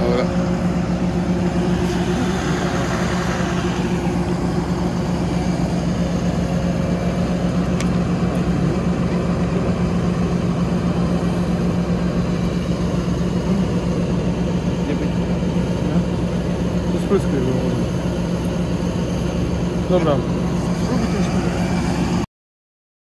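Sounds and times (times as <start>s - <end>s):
diesel engine idling: 0.0s - 22.3s.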